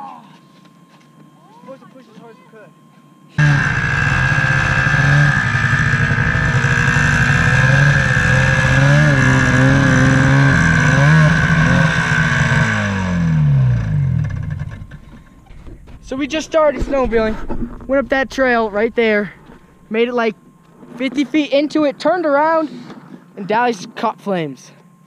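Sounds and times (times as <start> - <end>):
snowmobile engine revving: 3.4 - 15.1.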